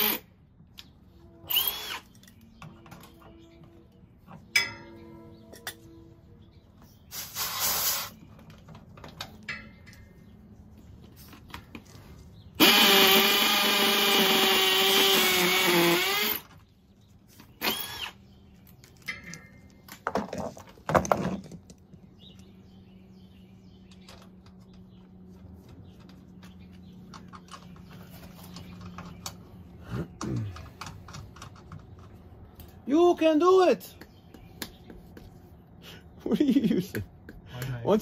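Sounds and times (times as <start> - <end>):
cordless drill whirring: 1.5 - 2.1, 12.6 - 16.4, 17.6 - 18.2.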